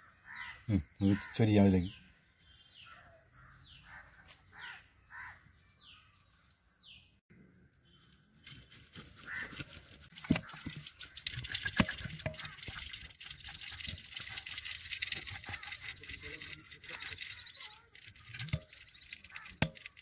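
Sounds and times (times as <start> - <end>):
crow cawing: 0.2 - 1.4, 2.9 - 5.5, 9.2 - 9.6, 19.2 - 19.6
rustling: 8.0 - 20.0.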